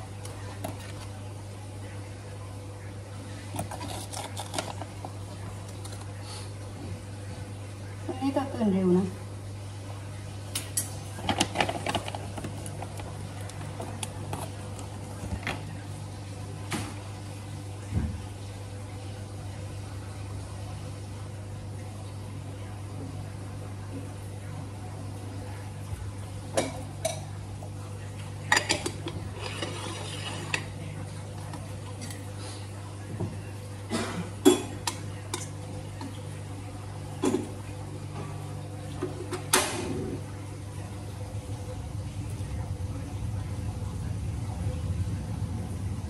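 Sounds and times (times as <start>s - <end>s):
steady low hum: 0.0s - 46.0s
moka pot clanking: 28.5s - 30.7s.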